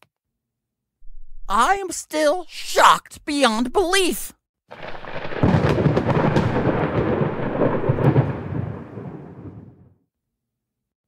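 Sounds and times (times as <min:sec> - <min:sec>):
thunder rumble: 0:04.7 - 0:09.9.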